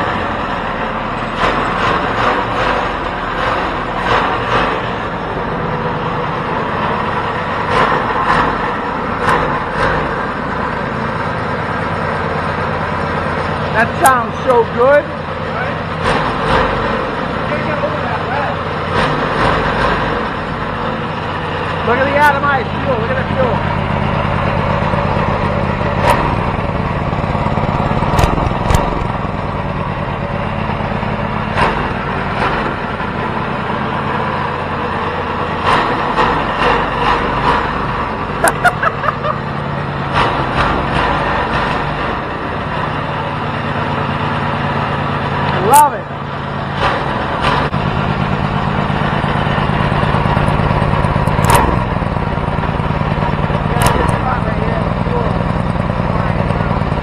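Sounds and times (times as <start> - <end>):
twin-cylinder engine running: 0.0 - 57.0
sharp engine cracks: 15.8 - 29.8, 35.4 - 42.3, 46.6 - 57.0.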